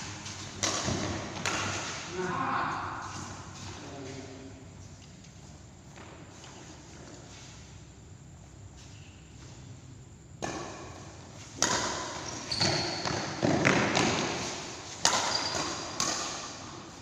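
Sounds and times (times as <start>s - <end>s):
racket hitting shuttlecock: 0.0s - 2.2s, 10.4s - 16.9s.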